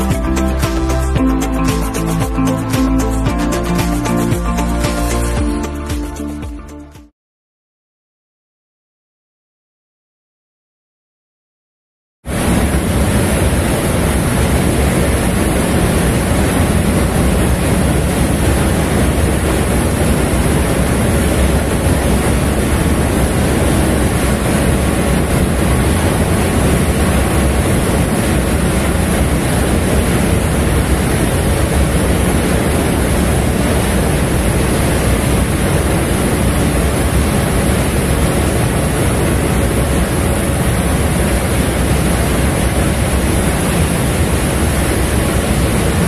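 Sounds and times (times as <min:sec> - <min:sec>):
ship engine rumble: 0:12.3 - 0:46.0
wind blowing across microphone: 0:12.3 - 0:46.0.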